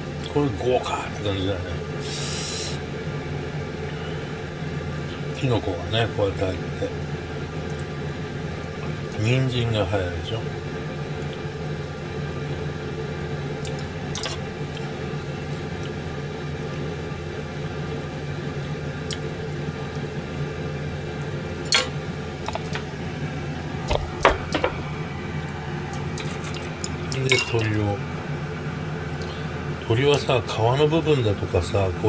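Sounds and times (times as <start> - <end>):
steady mechanical hum: 0.0 - 32.0.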